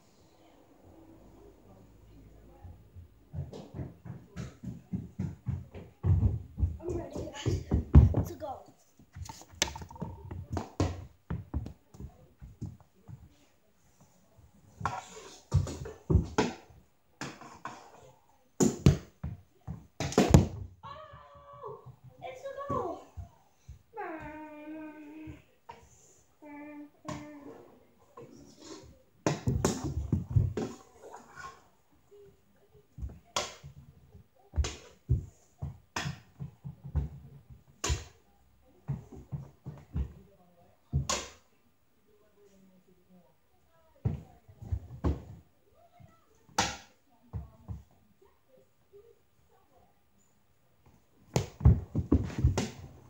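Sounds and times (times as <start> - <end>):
hockey stick knocking ball on wood floor: 9.1 - 12.8, 18.6 - 20.7.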